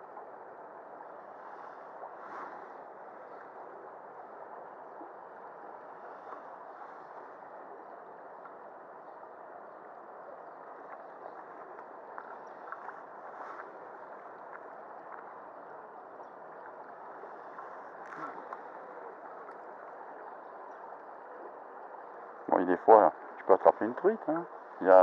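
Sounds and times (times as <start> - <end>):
faint clicks: 8.4 - 8.6, 10.7 - 21.2.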